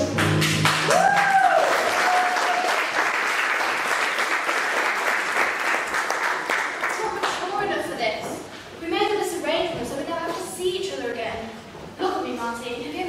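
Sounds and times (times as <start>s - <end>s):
audience applause: 0.1s - 7.4s.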